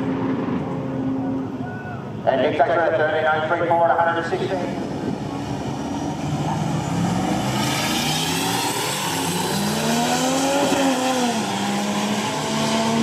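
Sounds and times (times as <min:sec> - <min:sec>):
engines accelerating: 0:00.0 - 0:13.0.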